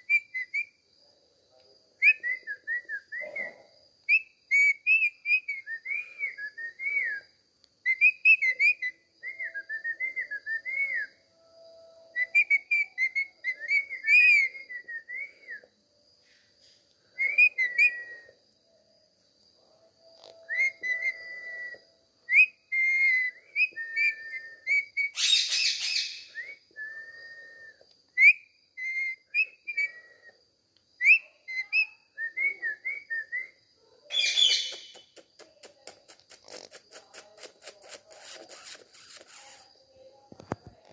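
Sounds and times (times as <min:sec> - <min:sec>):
parakeet whistled notes: 0:34.1 - 0:35.0.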